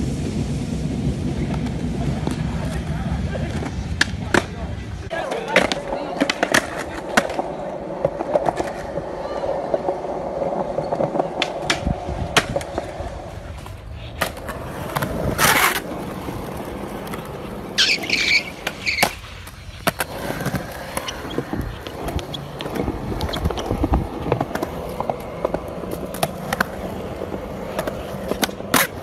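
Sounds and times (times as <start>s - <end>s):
skateboard scrape: 0.0s - 29.0s
skateboard wheels rolling on concrete: 0.0s - 29.0s
skateboard clacks: 0.1s - 29.0s
high squealing: 17.8s - 19.5s.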